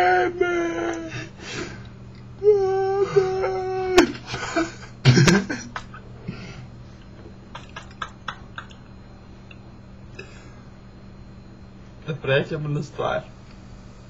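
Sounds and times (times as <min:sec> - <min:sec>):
man holding high vocal note: 0:00.0 - 0:01.8, 0:02.4 - 0:04.3
breathy laughing: 0:02.5 - 0:06.7, 0:07.5 - 0:08.8
loud cough-like burst: 0:04.2 - 0:06.0.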